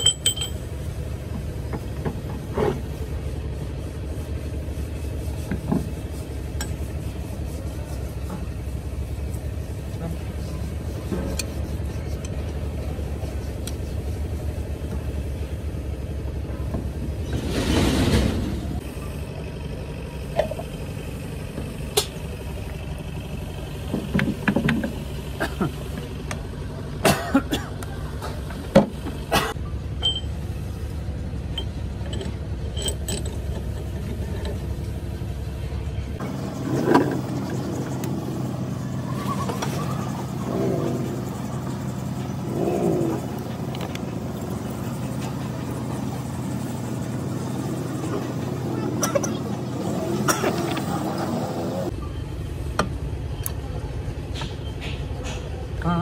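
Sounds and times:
metal clicks and clinks: 0.0 - 0.7, 31.5 - 34.6
engine droning: 0.0 - 56.0.

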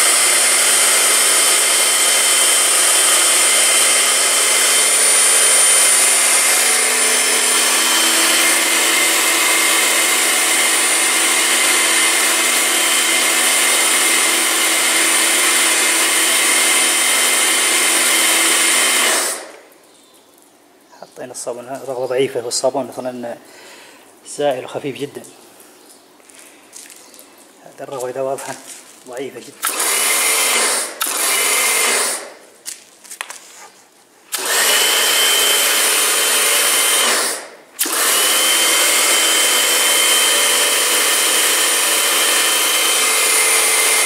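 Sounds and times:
pressure washer motor whining: 0.0 - 19.6, 29.6 - 32.4, 34.3 - 44.0.

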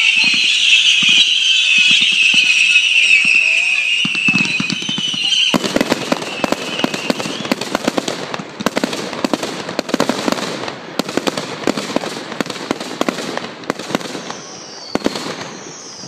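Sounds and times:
firework whistle: 0.0 - 7.8, 14.0 - 16.0
fireworks bangs and crackles: 0.0 - 16.0.

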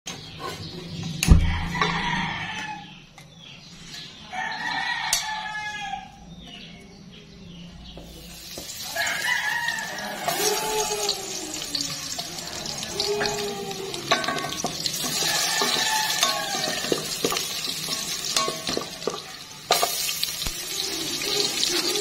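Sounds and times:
rooster crowing: 1.4 - 2.9, 4.3 - 6.2, 8.8 - 14.1, 15.0 - 17.1.

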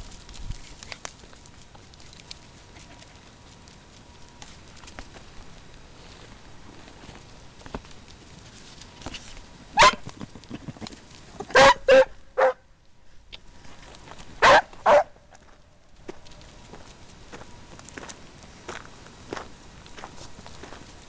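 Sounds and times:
dog barking: 9.8 - 10.0, 11.5 - 12.6, 14.4 - 15.2.

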